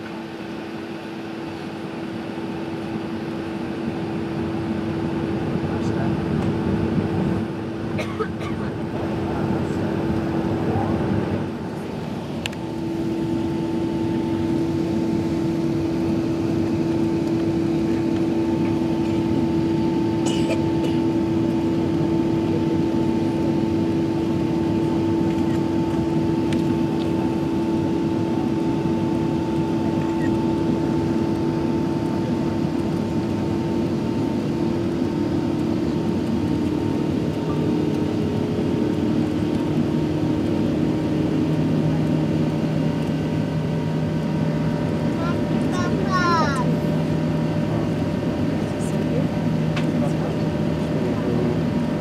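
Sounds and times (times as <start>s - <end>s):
jet engine cabin rush and hum: 0.0s - 52.0s
faint high engine tone: 11.6s - 33.2s.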